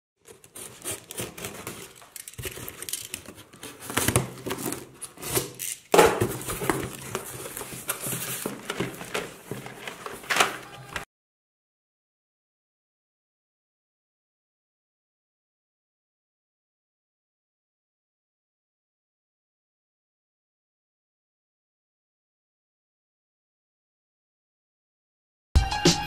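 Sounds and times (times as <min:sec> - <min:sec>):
cardboard flaps rustling and scraping: 0:00.2 - 0:11.0
packing tape pulled off: 0:00.3 - 0:11.0
small cardboard boxes knocking: 0:03.6 - 0:10.0.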